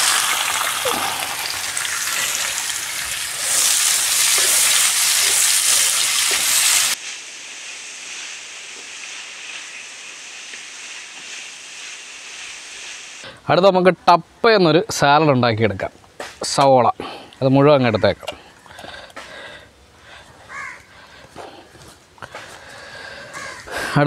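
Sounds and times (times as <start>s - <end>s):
onions sizzling in hot oil: 0.0s - 13.2s.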